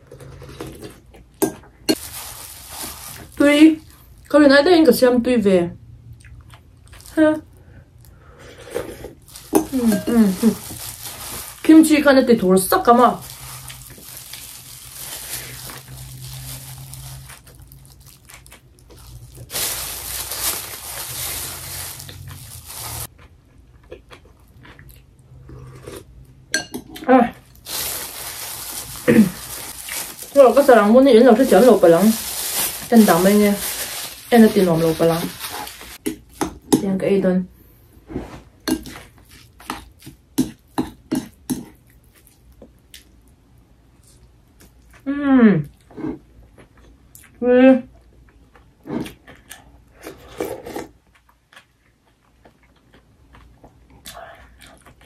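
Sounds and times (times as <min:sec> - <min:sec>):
rustling crunching noise: 0:01.9 - 0:04.0, 0:09.2 - 0:23.2, 0:27.4 - 0:36.0.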